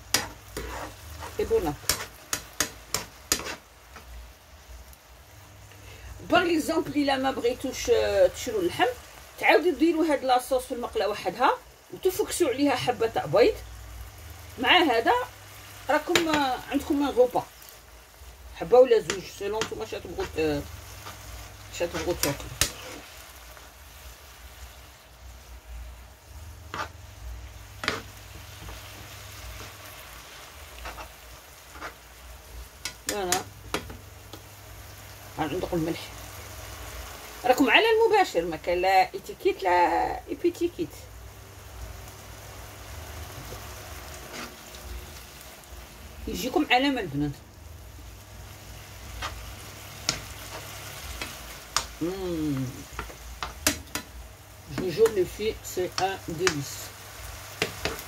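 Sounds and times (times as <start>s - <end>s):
vegetables sizzling in a frying pan: 0.0s - 58.0s
metal spoon clicking on pan: 51.2s - 52.0s.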